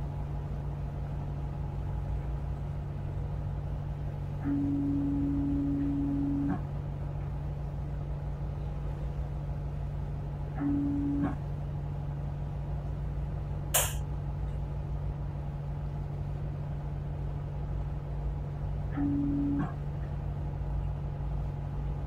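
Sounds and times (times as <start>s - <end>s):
sharp knock: 13.8s - 14.0s
diesel engines droning: 17.6s - 22.0s.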